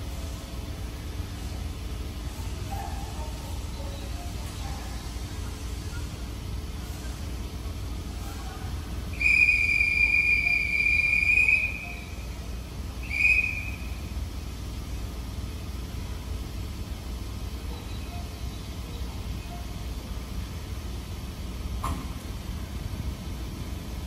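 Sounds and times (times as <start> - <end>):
railway whistle blasts: 9.1 - 14.1.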